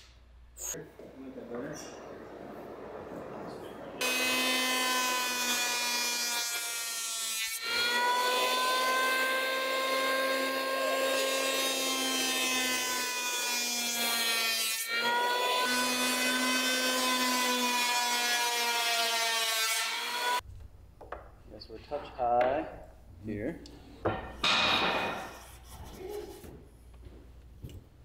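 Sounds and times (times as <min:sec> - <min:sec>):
electric planer cutting wood: 0:04.0 - 0:20.4.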